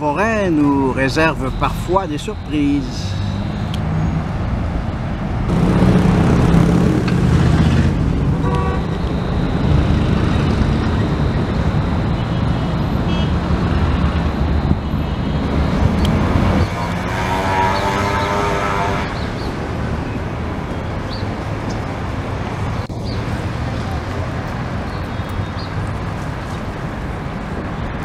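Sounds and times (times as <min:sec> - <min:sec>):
city road traffic: 0:00.0 - 0:28.0
car horn toot: 0:08.4 - 0:09.0, 0:13.1 - 0:13.4.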